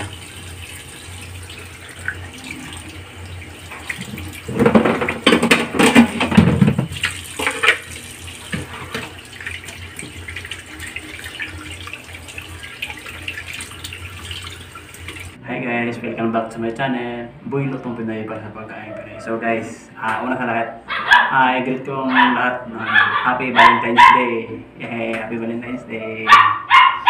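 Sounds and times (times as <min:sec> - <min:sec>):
tap running into steel sink: 0:03.7 - 0:09.2
splashing and knocking: 0:03.7 - 0:12.0.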